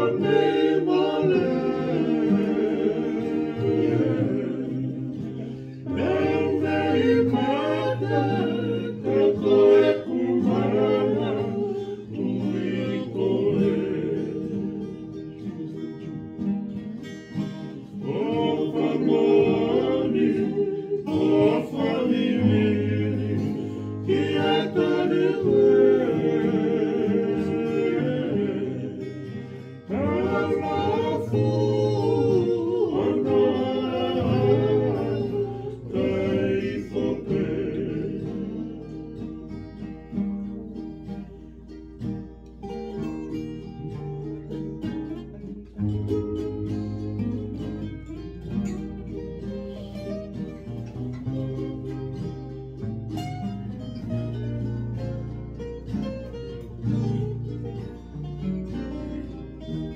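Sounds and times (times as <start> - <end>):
men singing in harmony: 0.0 - 16.1, 17.8 - 39.7
strummed acoustic guitars and ukuleles: 0.0 - 59.9.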